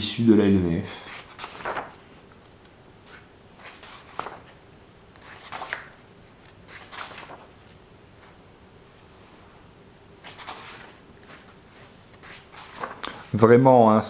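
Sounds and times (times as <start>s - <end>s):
book pages turning: 1.0s - 8.4s, 10.2s - 13.4s.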